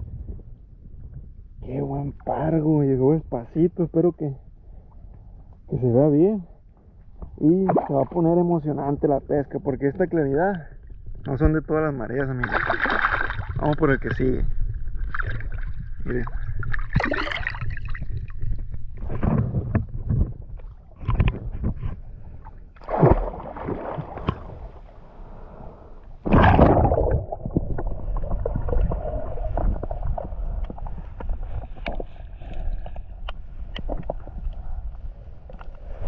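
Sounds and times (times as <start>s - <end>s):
water splashing and sloshing: 12.4s - 36.0s.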